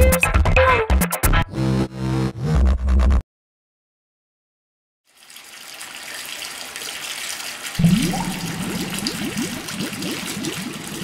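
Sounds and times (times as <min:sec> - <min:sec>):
churning bubbling water: 0:07.8 - 0:11.0
rising gurgles: 0:07.8 - 0:11.0.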